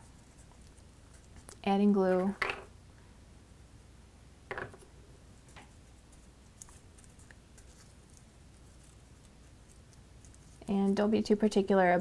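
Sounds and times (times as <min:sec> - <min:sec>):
paper crackling: 0:05.5 - 0:10.7.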